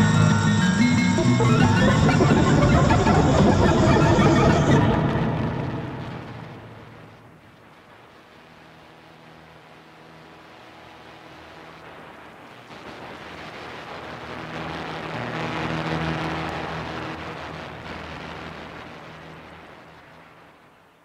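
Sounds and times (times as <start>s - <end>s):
hissing noise: 0.0s - 7.2s
steady low synth tones: 0.0s - 7.4s.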